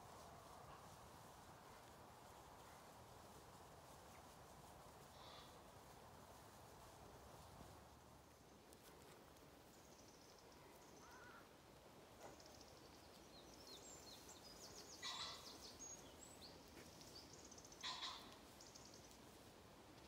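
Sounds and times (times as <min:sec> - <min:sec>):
faint wind-like hiss: 0:00.0 - 0:20.0
small birds chirping: 0:08.1 - 0:11.5, 0:12.1 - 0:19.4
short loud bird calls: 0:11.0 - 0:11.5, 0:14.9 - 0:15.6, 0:17.7 - 0:18.4.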